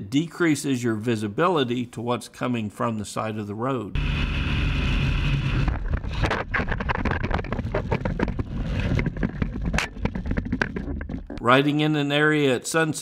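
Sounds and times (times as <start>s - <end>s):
motorcycle engine at speed: 4.0s - 10.0s
crash knocks and scraping: 5.6s - 11.4s.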